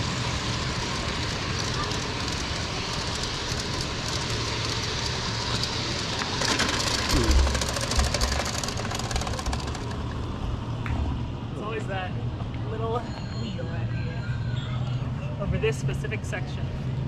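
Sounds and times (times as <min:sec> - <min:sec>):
miniature train rumbling on track: 0:00.0 - 0:10.8
rapid clicks: 0:00.8 - 0:10.3.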